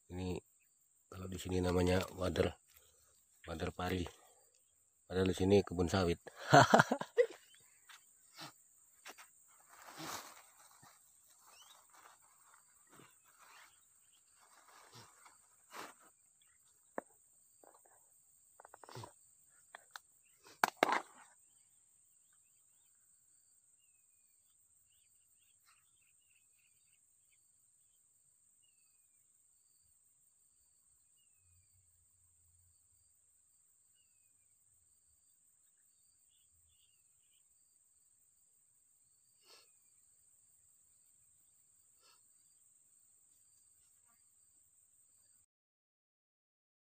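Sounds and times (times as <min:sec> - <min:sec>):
small chirps: 0:01.1 - 0:21.7
rustling dry grass and plastic bag: 0:09.6 - 0:16.2.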